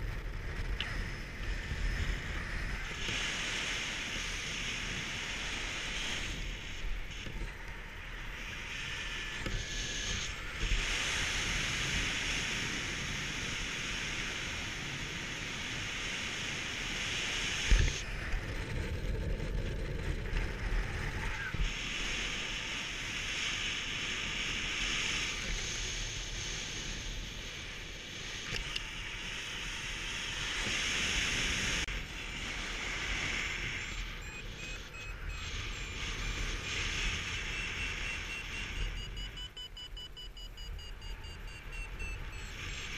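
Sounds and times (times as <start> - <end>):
wind rushing over microphone: 0.0 - 42.9
rapid high beeping: 33.6 - 42.9.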